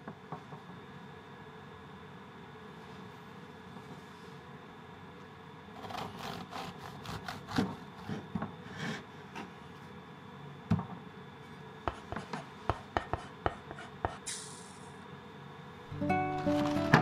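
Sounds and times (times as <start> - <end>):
bread knife sawing through crust: 5.8 - 8.8.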